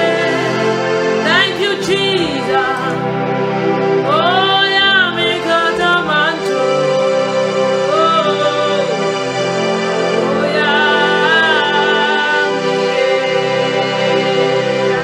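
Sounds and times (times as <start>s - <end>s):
woman singing gospel song: 0.0s - 0.6s, 1.2s - 3.0s, 4.1s - 9.0s, 10.2s - 15.0s
sustained instrumental backing: 0.0s - 15.0s.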